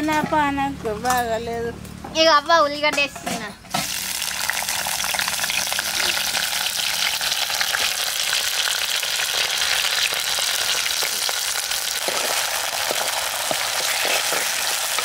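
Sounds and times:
crackles of frying: 3.7s - 15.0s
onions sizzling in a pot: 3.8s - 15.0s.

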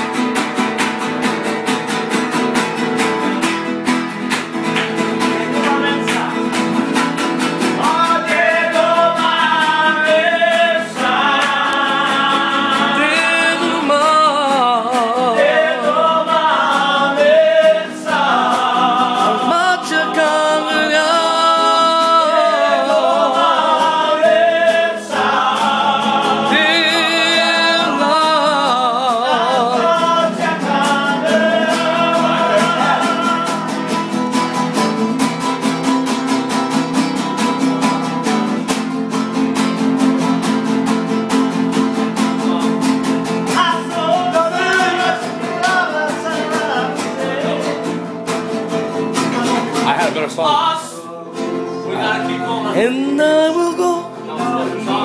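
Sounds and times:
classical guitars strumming: 0.0s - 55.0s
person singing with vibrato: 7.6s - 34.2s, 43.5s - 48.2s, 49.2s - 55.0s.

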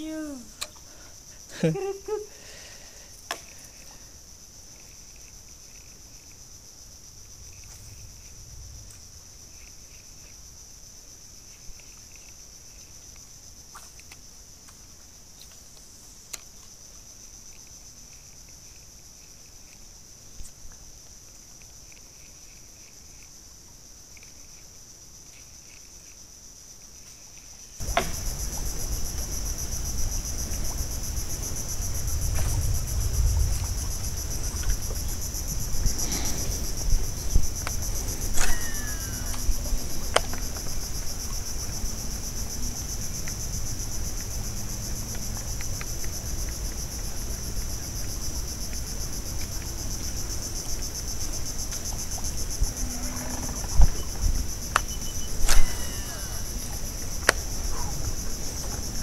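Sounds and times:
insects droning: 0.0s - 59.0s
low rumble: 27.8s - 38.4s.

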